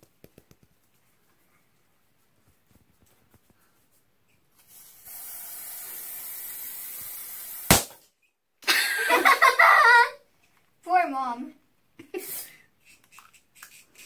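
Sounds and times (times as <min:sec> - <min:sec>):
aerosol can hissing: 0:04.6 - 0:07.8, 0:12.2 - 0:14.0
sharp pop: 0:07.7 - 0:08.2.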